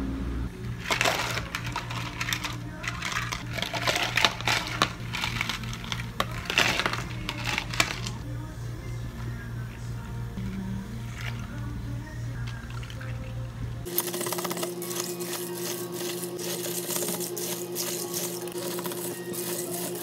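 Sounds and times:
soft background music: 0:00.4 - 0:20.0
ice cubes clinking into cups: 0:00.7 - 0:08.2, 0:12.4 - 0:20.0.

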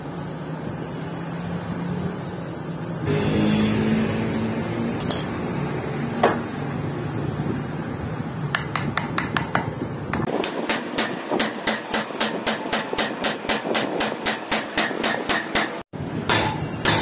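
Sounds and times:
hammer striking steel: 0:05.0 - 0:05.4, 0:08.6 - 0:17.0.

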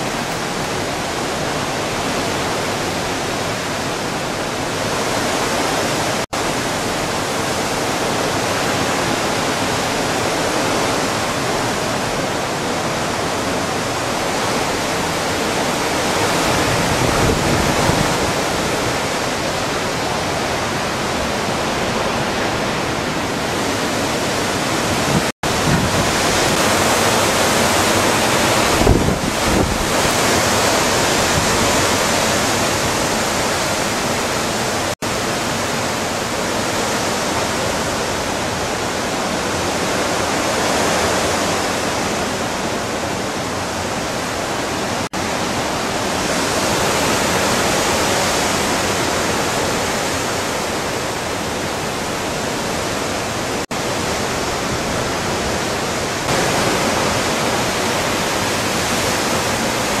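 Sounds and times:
strong wind rushing through trees: 0:00.0 - 1:00.0.

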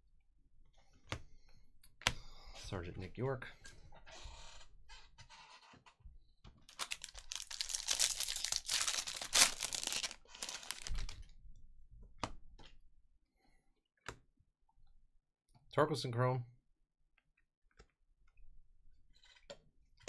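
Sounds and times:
wrapper tearing and crinkling: 0:06.7 - 0:11.2.

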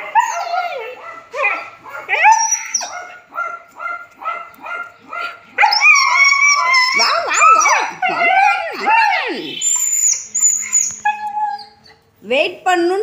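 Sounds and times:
dog whining: 0:00.0 - 0:03.2, 0:05.1 - 0:12.1
dog yipping: 0:00.0 - 0:12.0.

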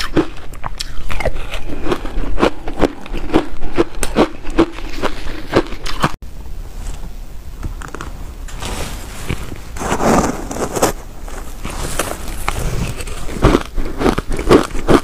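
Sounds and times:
ice being crunched and chewed: 0:00.0 - 0:06.2, 0:09.2 - 0:15.0.

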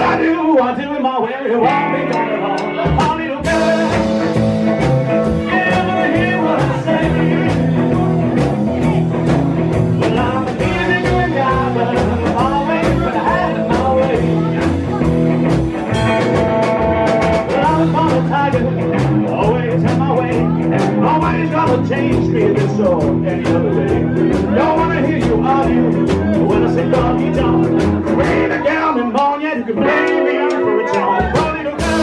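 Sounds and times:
acoustic rhythm guitar: 0:00.0 - 0:32.0
electric lead guitar: 0:00.0 - 0:32.0
person singing: 0:00.0 - 0:32.0
drums with cymbal beat: 0:01.7 - 0:28.9, 0:30.5 - 0:32.0.

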